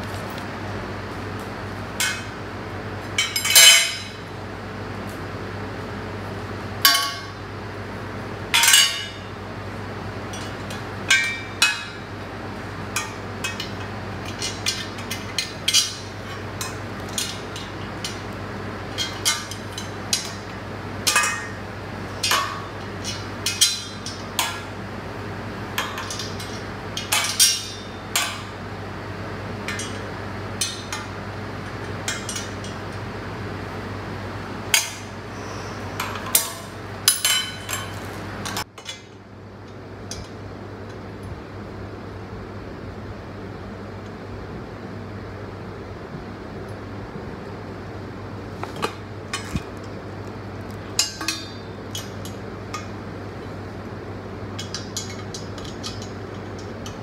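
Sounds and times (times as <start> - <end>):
steady low hum: 0.0 - 57.0
metal tubes clinking and knocking: 3.2 - 4.2, 13.0 - 18.3, 18.9 - 20.5, 21.1 - 21.6, 22.2 - 24.7, 25.8 - 28.5, 29.7 - 32.8, 51.0 - 53.0, 54.5 - 57.0.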